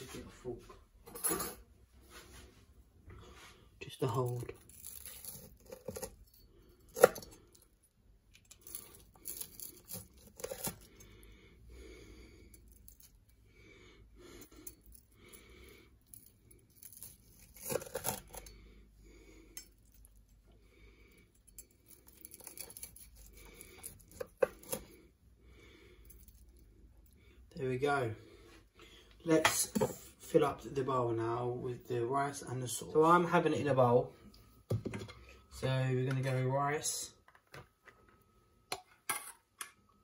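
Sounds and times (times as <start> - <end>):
knife crunching through crust: 4.3 - 7.6, 8.4 - 11.1, 16.6 - 18.5, 21.6 - 25.0.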